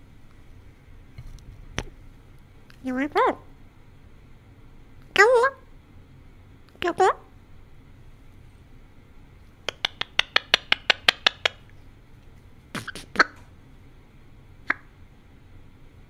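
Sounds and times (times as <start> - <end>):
parrot clicking: 9.6 - 11.7.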